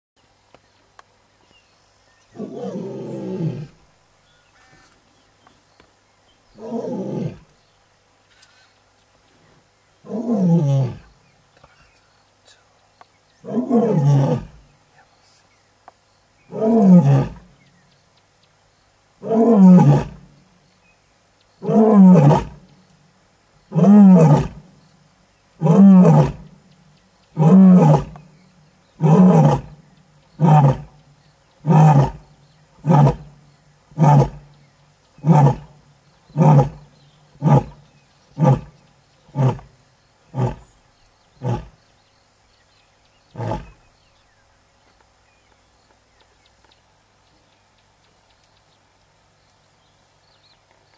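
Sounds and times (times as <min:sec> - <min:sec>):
lioness roaring: 0:02.4 - 0:03.8, 0:13.4 - 0:14.6, 0:16.5 - 0:17.4, 0:21.6 - 0:22.6, 0:25.6 - 0:26.5, 0:27.4 - 0:28.2, 0:29.0 - 0:29.8, 0:36.3 - 0:37.8.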